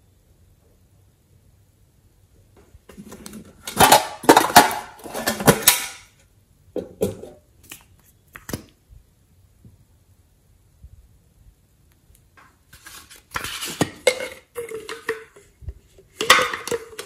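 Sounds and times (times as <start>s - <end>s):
plastic tubes clicking and clattering: 2.9s - 6.2s, 13.2s - 17.0s.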